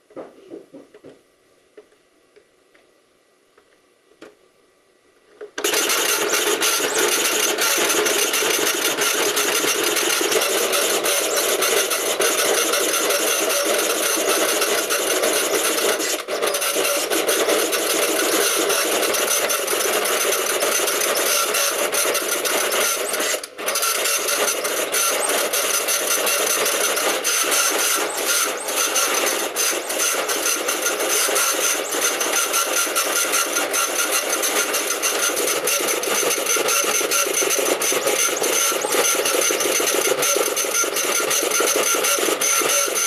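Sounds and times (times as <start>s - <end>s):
dot-matrix printer printing: 5.6s - 43.0s.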